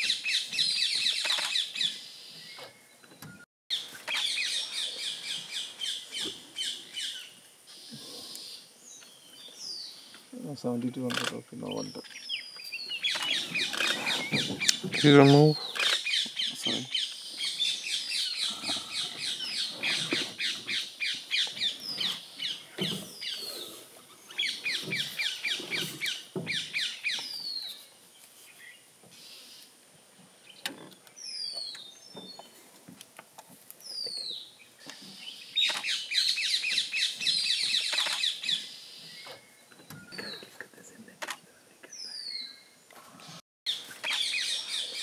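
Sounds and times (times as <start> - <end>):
birds chirping: 0.0 - 32.6, 33.8 - 45.0.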